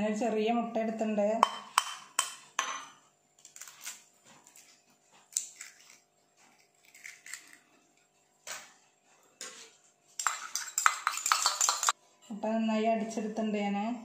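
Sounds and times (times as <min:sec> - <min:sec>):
spoon clinking in steel tumbler: 0:10.2 - 0:12.0.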